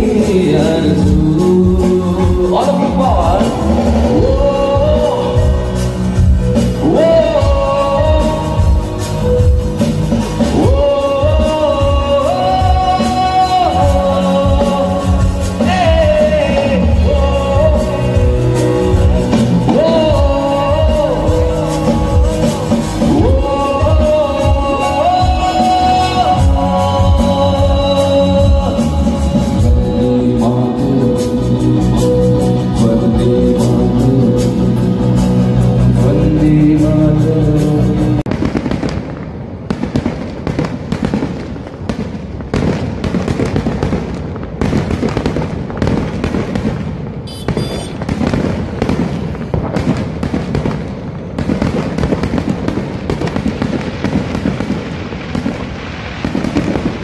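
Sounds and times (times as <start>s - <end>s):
band music outdoors: 0.0s - 57.0s
fireworks bangs: 38.3s - 57.0s.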